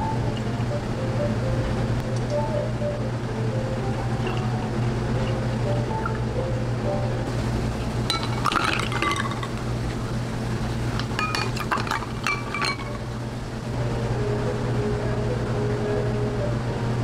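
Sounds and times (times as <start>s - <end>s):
ice cubes clinking in glass: 8.1s - 9.7s, 11.0s - 13.1s.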